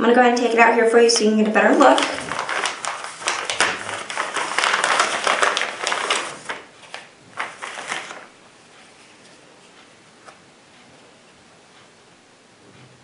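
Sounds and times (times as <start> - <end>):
plastic bag crinkling: 1.0 - 8.3.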